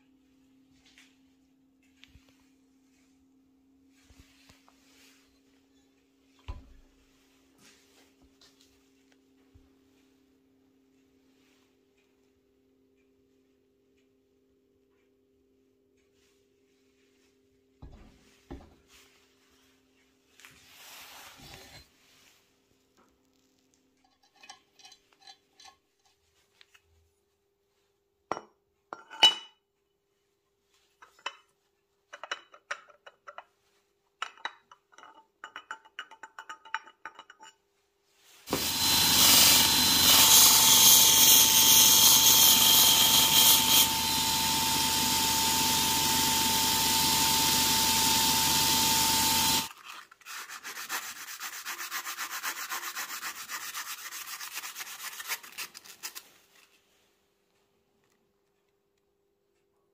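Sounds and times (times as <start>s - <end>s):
power tool whining and grinding: 38.5s - 49.7s.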